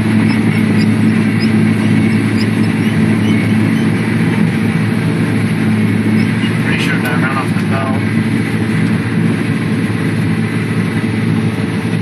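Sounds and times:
harvester machine drone: 0.0 - 12.0.

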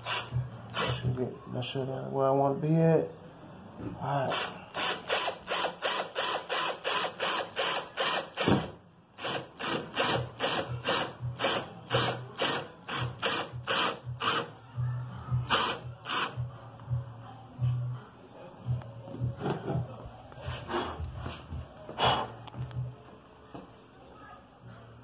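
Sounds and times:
cordless drill short bursts: 4.3 - 8.6, 9.2 - 14.5.

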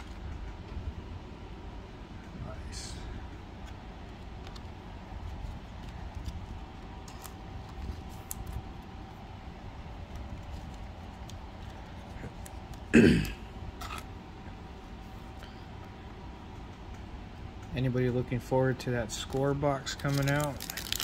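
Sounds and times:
trading cards rustling: 2.7 - 12.9, 13.7 - 14.2, 19.0 - 21.0
person clearing throat: 12.9 - 13.5.

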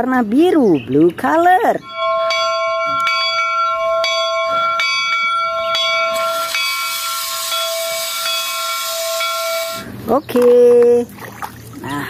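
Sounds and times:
steam locomotive bell ringing: 1.6 - 10.1
loud steam hiss: 6.1 - 10.0.

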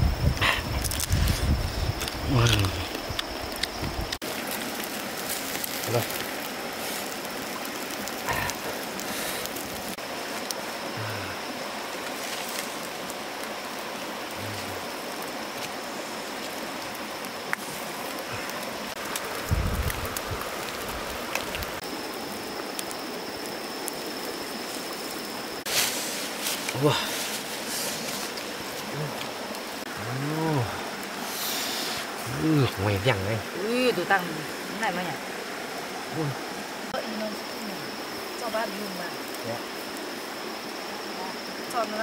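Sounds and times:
stream running over rocks: 0.0 - 42.0.

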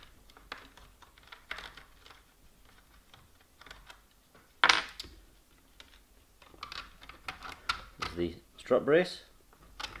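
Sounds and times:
small parts tapping: 0.0 - 8.3, 9.5 - 10.0.

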